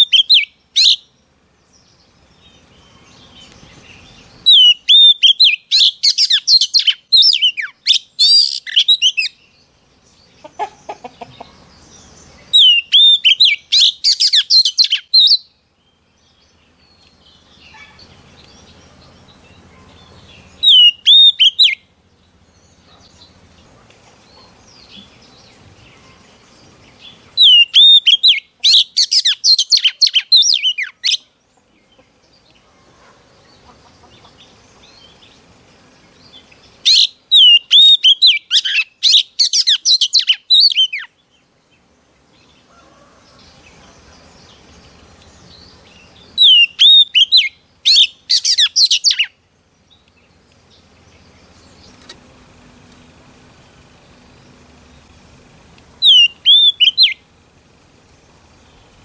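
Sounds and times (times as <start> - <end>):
bird singing whistles and trills: 0.0 - 1.2, 1.8 - 9.6, 12.4 - 21.9, 27.4 - 31.2, 36.2 - 41.3, 44.5 - 50.0, 56.0 - 57.2.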